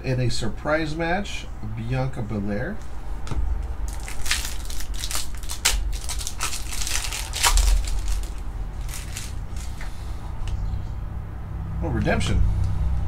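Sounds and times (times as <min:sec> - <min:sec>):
foil wrapper crinkling: 0:03.9 - 0:09.8.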